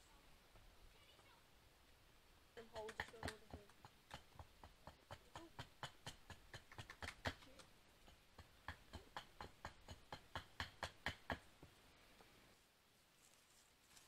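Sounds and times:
sharp taps: 2.6s - 11.4s.

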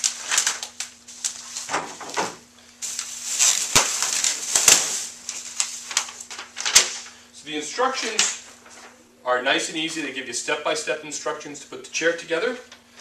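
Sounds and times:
plastic wrapping crinkling: 0.0s - 7.2s.

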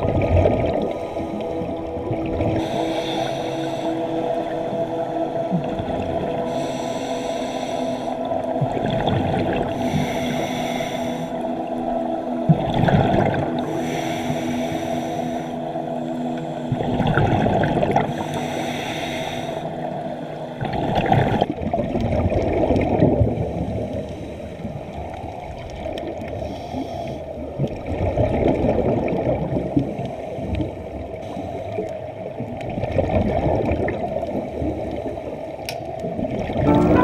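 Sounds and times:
muffled underwater gurgling: 0.0s - 35.4s, 36.0s - 37.0s
steady tones: 36.6s - 37.0s.

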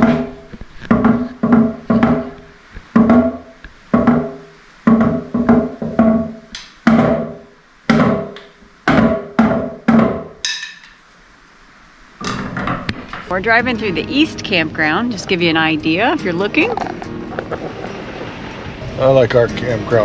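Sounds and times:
drumsticks hitting drum pad: 0.0s - 11.0s.

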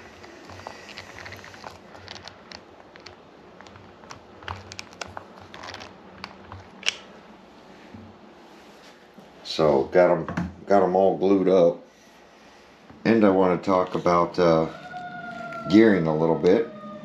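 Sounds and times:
rubber tire clicks and ticks: 0.1s - 7.0s.

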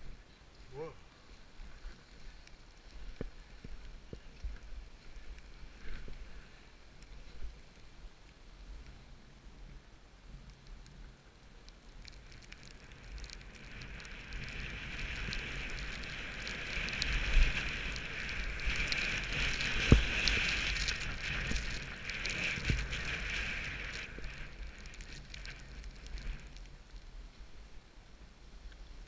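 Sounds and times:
skis hissing over snow: 0.2s - 7.7s, 13.5s - 26.6s.

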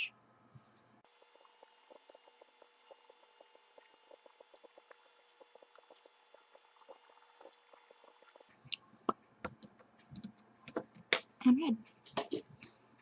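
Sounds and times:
faint steady hum: 0.0s - 13.0s
lip brush wet ticking: 1.4s - 8.8s.

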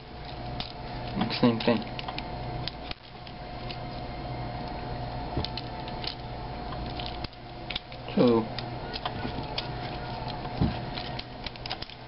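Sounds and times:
steady low hum: 0.0s - 12.0s
plastic toy clicks and rattles: 0.2s - 3.8s, 10.9s - 12.0s.

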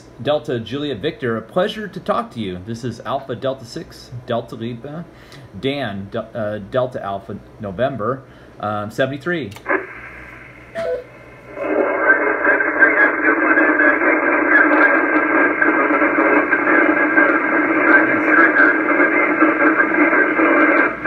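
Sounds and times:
radio signal from speaker: 9.6s - 21.0s.

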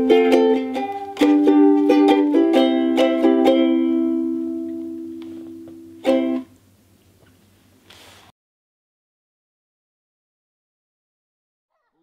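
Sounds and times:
ukulele strumming: 0.0s - 6.6s.

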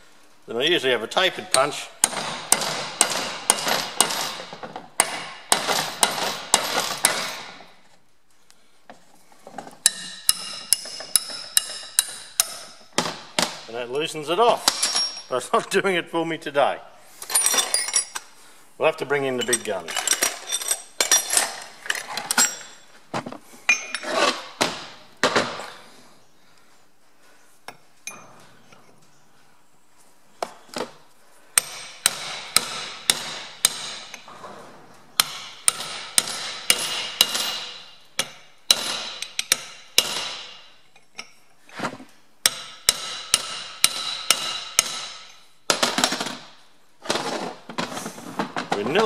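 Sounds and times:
hammer striking chisel on metal: 1.5s - 7.5s, 9.8s - 13.6s, 31.6s - 34.2s, 35.2s - 40.6s, 42.4s - 45.8s.

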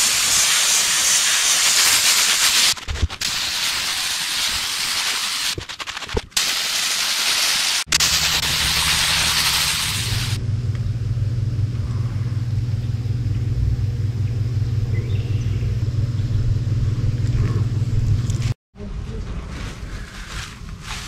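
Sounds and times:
loud hissing: 0.0s - 5.6s, 6.4s - 10.4s
low motor rumble with hum: 8.0s - 19.2s.

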